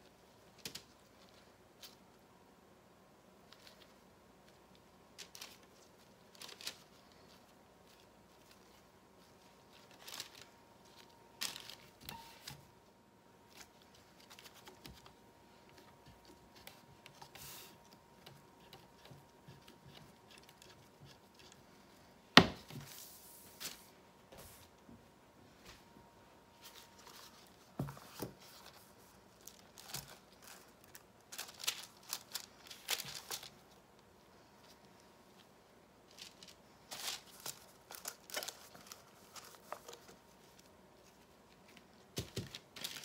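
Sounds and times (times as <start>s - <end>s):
hand brushing across paper: 22.8s - 24.7s.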